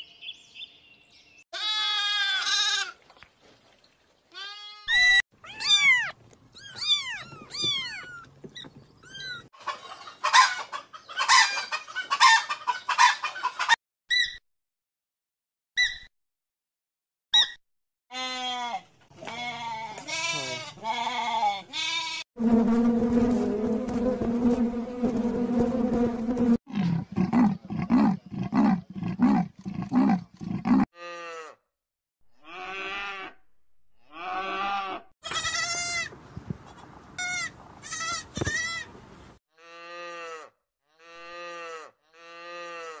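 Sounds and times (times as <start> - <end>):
calves bawling: 4.4 - 9.5, 26.7 - 30.9.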